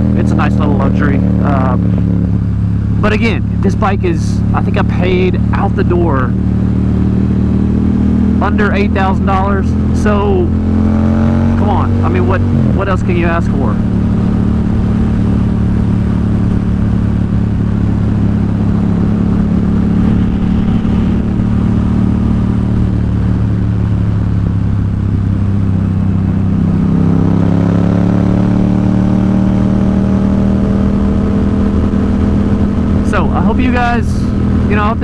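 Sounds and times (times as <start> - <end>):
motorcycle engine cruising: 0.0 - 35.0
wind rush: 13.7 - 35.0.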